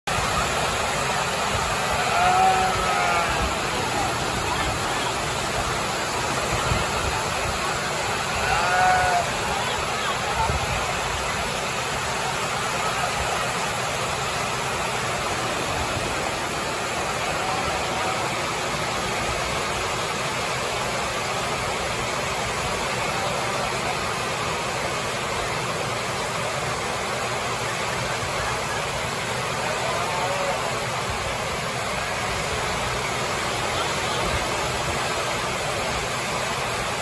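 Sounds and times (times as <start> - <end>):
heavy rain on metal roof: 0.0 - 37.0.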